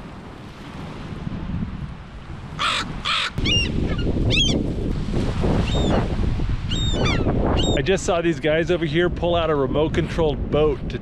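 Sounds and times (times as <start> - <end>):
wind rumble on microphone: 0.0 - 11.0
crows cawing: 2.6 - 3.6
gulls calling: 2.6 - 4.6, 5.6 - 6.1, 6.7 - 7.9.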